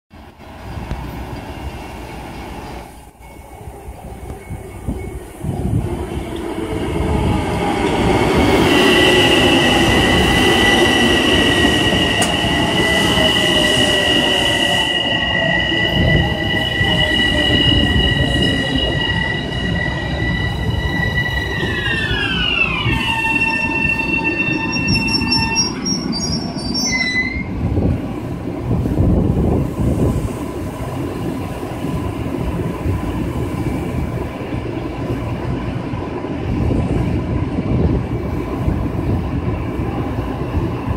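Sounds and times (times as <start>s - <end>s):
train wheels rumbling on rail: 0.2s - 40.9s.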